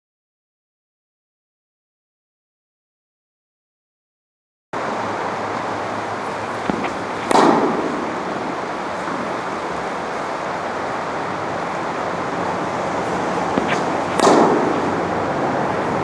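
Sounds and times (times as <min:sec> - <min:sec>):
steady background hiss: 0:04.8 - 0:16.0
racket hitting tennis ball: 0:06.2 - 0:10.6, 0:11.7 - 0:15.8.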